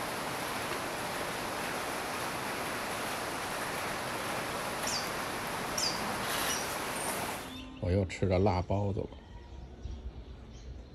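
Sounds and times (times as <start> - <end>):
rain falling: 0.0 - 7.6
high downward bird chirps: 4.8 - 8.0.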